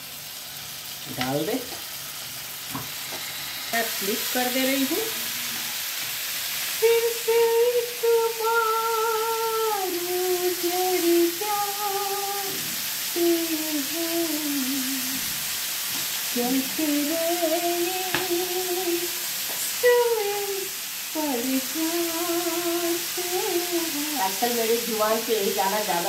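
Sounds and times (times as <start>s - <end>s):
chicken sizzling in a pan: 0.0s - 26.0s
woman humming: 6.8s - 15.3s, 19.9s - 24.4s.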